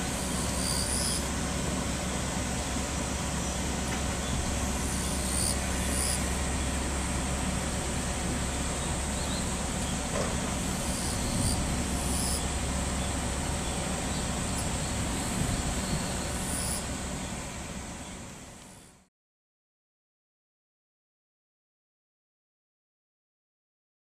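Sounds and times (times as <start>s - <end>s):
electric train rumbling past: 0.0s - 19.0s.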